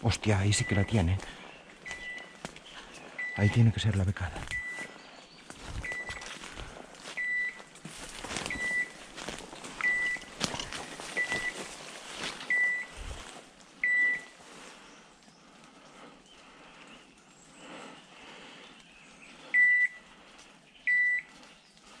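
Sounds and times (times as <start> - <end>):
footsteps crunching through leaves: 4.4 - 14.9
brushing through undergrowth: 4.4 - 15.8
high electronic beeps: 4.5 - 4.9, 9.8 - 11.6, 12.5 - 13.0.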